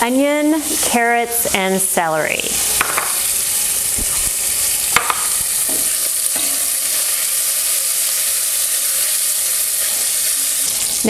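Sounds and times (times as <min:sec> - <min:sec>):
bacon sizzling in a pot: 0:00.0 - 0:11.0
sharp knocks: 0:05.0 - 0:05.9.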